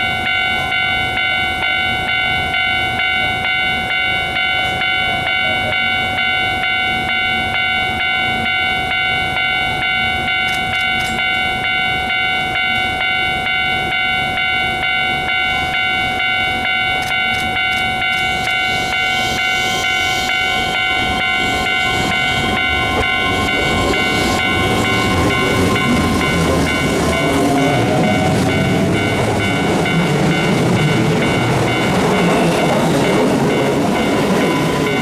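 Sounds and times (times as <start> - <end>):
steady high tones: 0.0 - 35.0
train wheels rumbling on rails: 0.0 - 35.0
electric train motor whine: 14.9 - 35.0.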